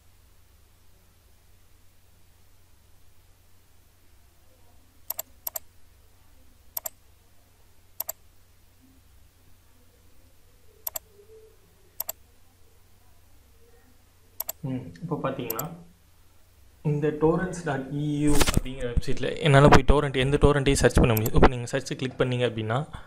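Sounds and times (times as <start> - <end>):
faint low hum: 0.0 - 23.0
computer mouse button clicking: 5.1 - 5.6, 6.8 - 7.0, 8.0 - 8.2, 10.8 - 11.0, 14.4 - 14.6, 15.5 - 15.7, 21.2 - 21.4.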